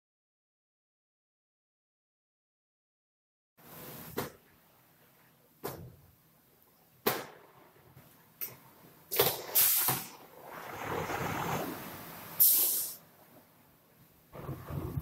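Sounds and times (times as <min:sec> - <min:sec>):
aerosol spray hissing: 0:12.4 - 0:13.0.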